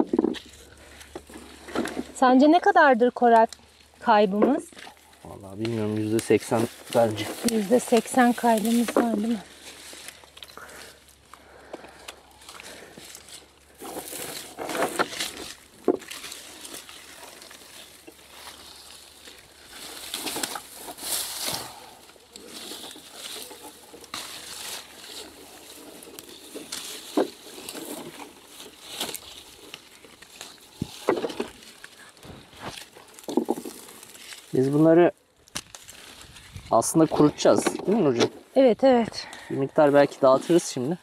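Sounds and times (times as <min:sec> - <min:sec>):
bushes rustling and crackling: 0:00.0 - 0:41.0
sharp clicks among leaves: 0:04.6 - 0:36.7.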